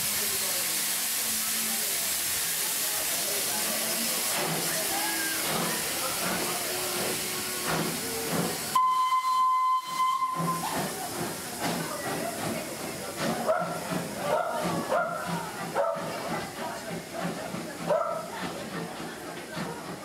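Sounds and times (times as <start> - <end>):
steam locomotive hissing steam: 0.0 - 20.0
steam whistle blast: 8.8 - 10.7.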